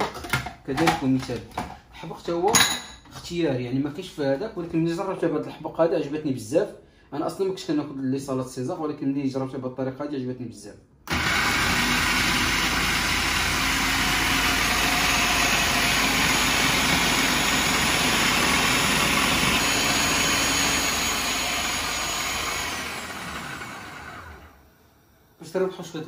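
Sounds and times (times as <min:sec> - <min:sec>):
food processor motor whirring: 0:11.1 - 0:24.8.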